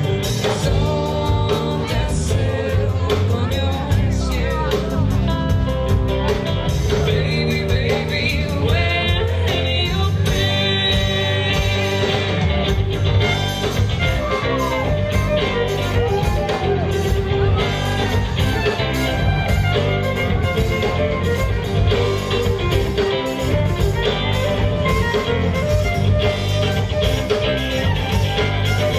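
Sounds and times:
bass: 0.0s - 28.9s
drums: 0.0s - 28.9s
electric guitars: 0.0s - 28.9s
person singing: 0.0s - 28.9s
fiddle: 11.4s - 28.9s.

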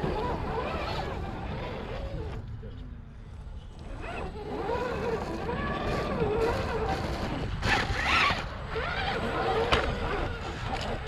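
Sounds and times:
tires scraping over stone: 0.0s - 11.0s
electric motor whining: 3.7s - 11.0s.

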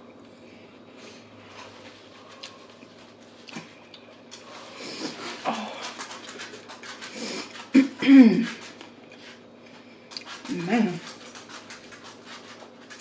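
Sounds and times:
chewing and crunching: 2.2s - 13.0s.

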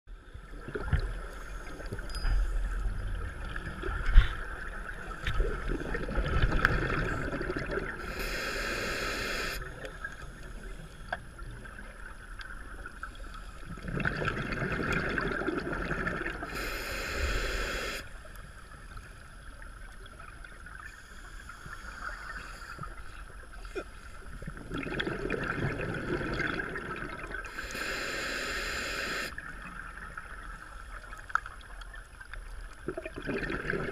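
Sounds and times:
bubbling gurgle: 3.6s - 8.2s, 13.7s - 17.1s, 24.4s - 28.0s, 32.8s - 33.9s
regulator hissing: 8.0s - 9.6s, 16.5s - 18.1s, 27.5s - 29.3s.

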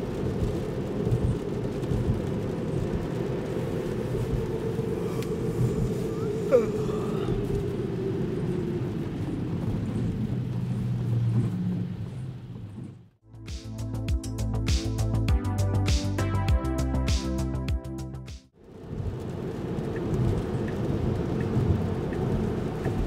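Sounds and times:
rain on car: 0.0s - 13.2s, 18.6s - 23.0s
road and tyre noise: 0.0s - 13.3s, 18.5s - 23.0s.

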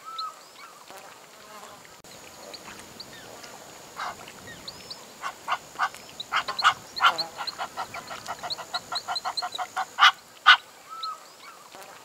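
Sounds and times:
small birds chirping: 2.1s - 10.3s
water bird harsh calls: 2.2s - 11.7s.

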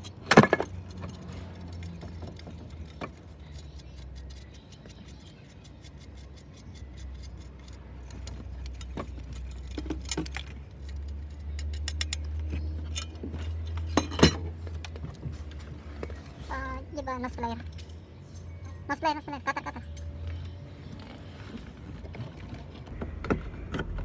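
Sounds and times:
metal parts and tools clinking: 0.0s - 16.1s, 17.2s - 19.2s.

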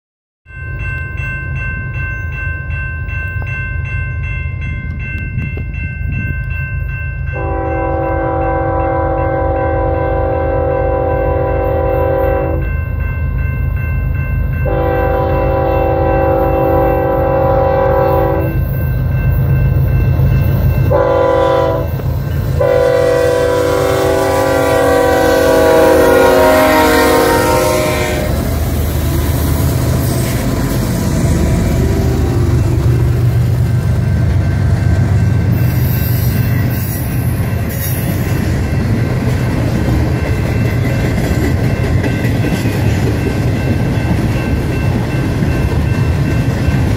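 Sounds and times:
crossing warning bell ringing: 0.5s - 46.9s
train air horn blasts: 7.4s - 12.7s, 14.6s - 18.6s, 20.9s - 21.9s, 22.6s - 28.4s
diesel locomotive rumble: 14.4s - 37.7s.

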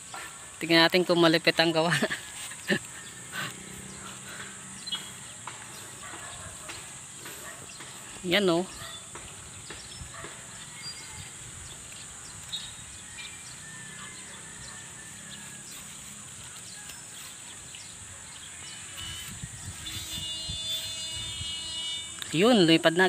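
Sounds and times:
wind buffeting microphone: 3.9s - 13.1s, 19.0s - 21.8s.

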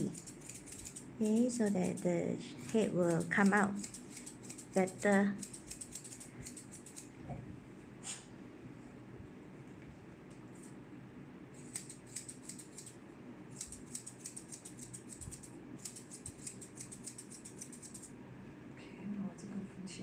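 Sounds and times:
scissors snipping fur: 0.0s - 7.1s, 11.6s - 18.1s.

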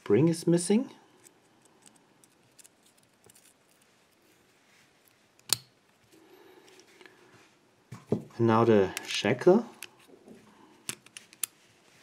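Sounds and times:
padlock parts clicking and scraping: 1.2s - 4.2s, 10.8s - 11.6s.

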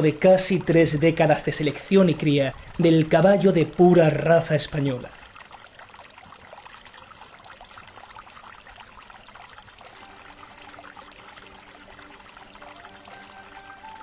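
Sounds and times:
fountain water trickling: 0.0s - 14.0s
faint music with held tones: 7.9s - 14.0s.

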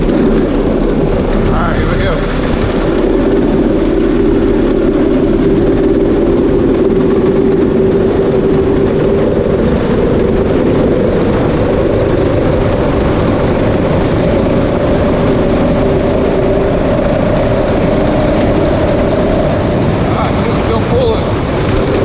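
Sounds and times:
go-kart engine at full throttle: 0.0s - 22.0s
wind noise: 0.0s - 22.0s.

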